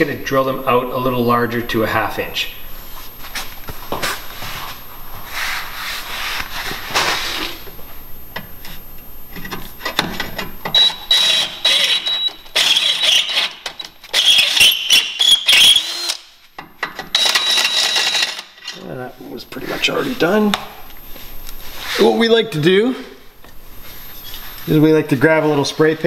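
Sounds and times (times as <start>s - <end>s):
drill grinding through steel: 10.8s - 16.3s, 17.1s - 18.6s.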